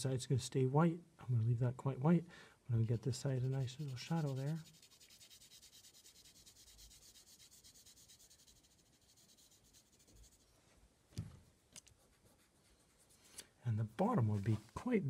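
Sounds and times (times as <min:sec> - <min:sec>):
pencil scratching on paper: 0:02.8 - 0:10.6, 0:12.0 - 0:13.3.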